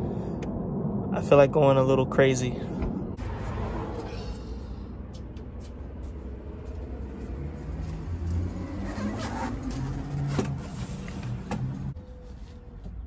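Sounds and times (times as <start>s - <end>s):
car engine accelerating past: 6.4s - 11.9s.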